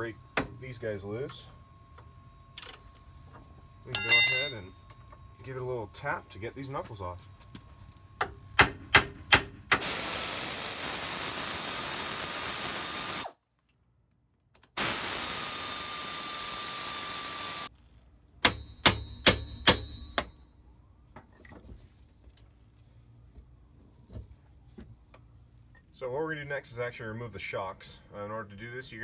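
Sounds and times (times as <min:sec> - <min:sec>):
ringing metal clangs: 0:03.9 - 0:05.0, 0:18.5 - 0:20.4.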